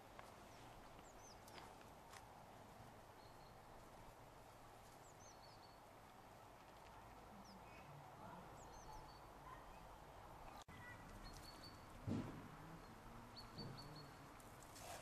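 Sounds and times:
bird chirps: 10.8 - 12.0, 12.8 - 14.2.

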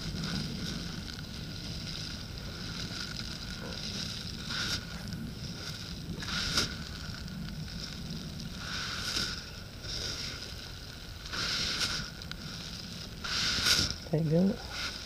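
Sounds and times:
steady low rumble: 0.0 - 15.0
microphone rubbing against shirt: 7.7 - 15.0.

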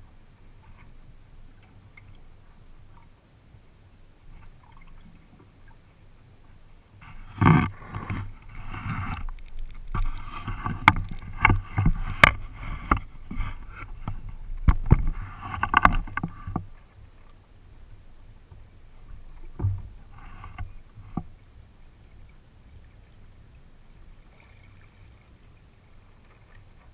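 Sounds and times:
knocks and clicks through boat: 0.0 - 3.7, 4.3 - 17.4, 18.2 - 22.1
water splashing against kayak hull: 0.0 - 26.9.

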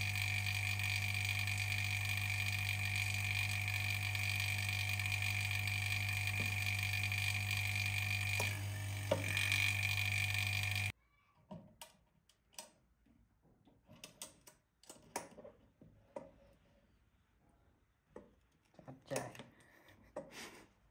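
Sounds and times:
laminating machine hum: 0.0 - 10.9.

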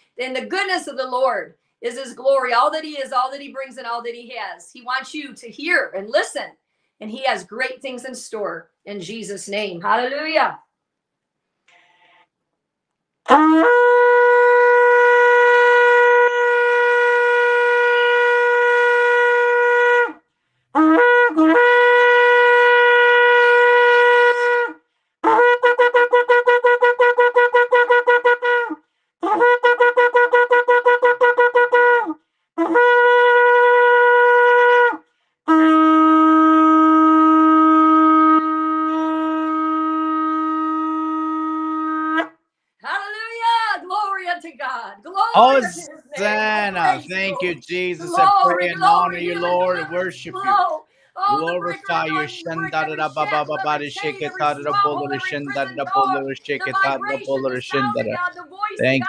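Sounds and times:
shofar horn blasts: 13.3 - 19.9, 20.8 - 24.6, 35.5 - 42.2, 45.4 - 56.2.

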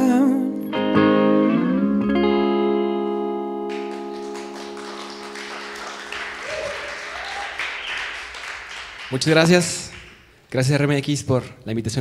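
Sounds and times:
scattered applause: 3.7 - 10.4.

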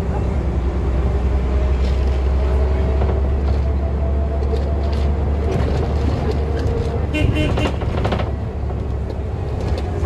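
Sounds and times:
bus engine rumble: 0.0 - 10.0
bodywork clicks and rattles: 2.9 - 10.0.

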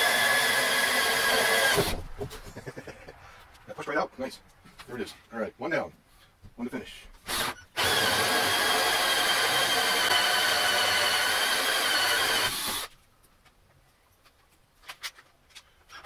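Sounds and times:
hole saw cutting wood: 0.0 - 2.0, 7.3 - 12.9
drill motor whine: 7.3 - 12.9.

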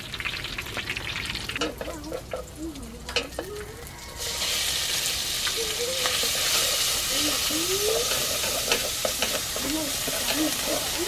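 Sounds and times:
meat sizzling in hot oil: 0.0 - 2.5, 3.9 - 11.0
chopsticks stirring: 6.1 - 11.0.

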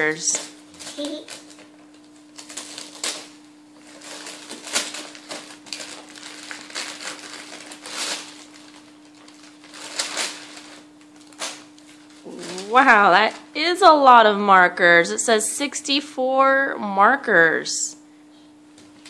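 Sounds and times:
wrapping paper tearing and crumpling: 0.0 - 13.5
faint steady hum: 0.0 - 19.0.

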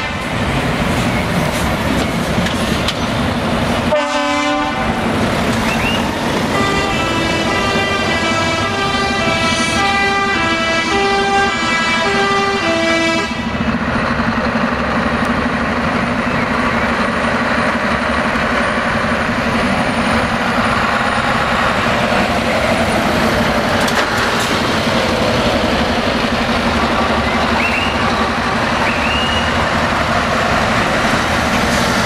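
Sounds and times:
trucks driving past: 0.0 - 32.0
musical air horn: 3.9 - 5.0, 6.5 - 13.5.

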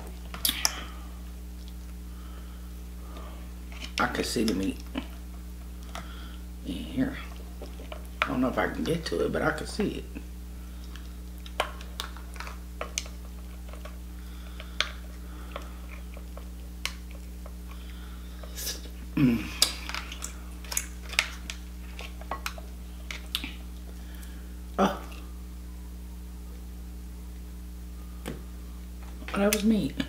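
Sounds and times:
electrical hum: 0.0 - 30.0
chewing: 10.8 - 24.4
lobster shell cracking: 10.9 - 18.9, 19.5 - 24.3
short low vocal sound: 18.6 - 19.7.

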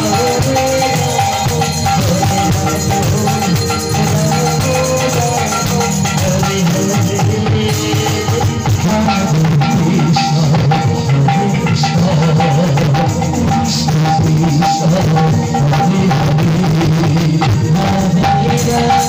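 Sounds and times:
jangling hand cymbals: 0.0 - 14.2
electronic keyboard melody: 0.0 - 19.0
hand drum rhythm: 0.0 - 19.0.

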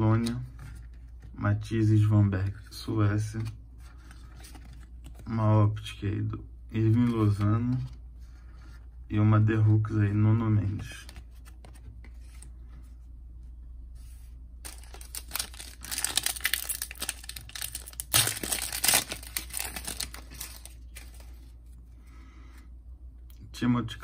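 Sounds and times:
foil wrapper tearing and crinkling: 14.6 - 21.2.

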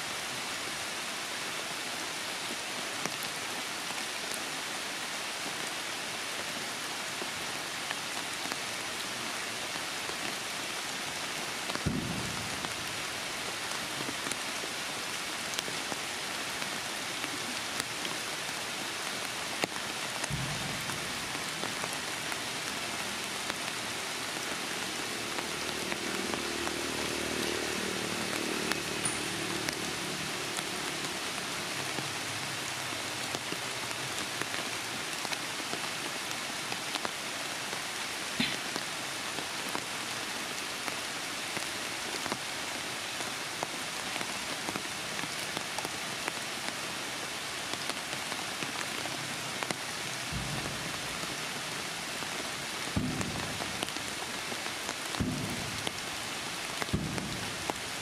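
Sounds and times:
heavy rain: 0.0 - 58.0.

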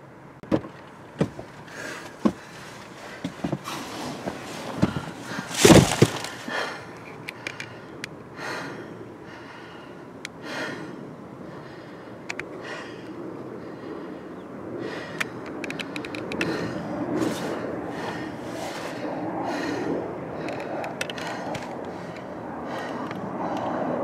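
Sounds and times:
irregular knocks and clicks: 0.4 - 1.5
rustling: 2.0 - 6.5.

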